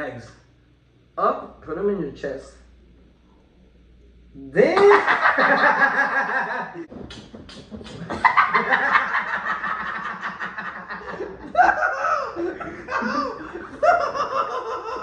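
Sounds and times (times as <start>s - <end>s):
men laughing: 4.6s - 15.0s.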